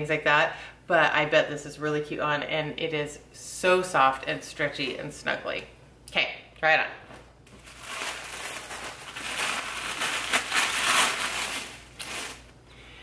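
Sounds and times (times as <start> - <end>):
fabric and packaging rustling: 7.5 - 12.6.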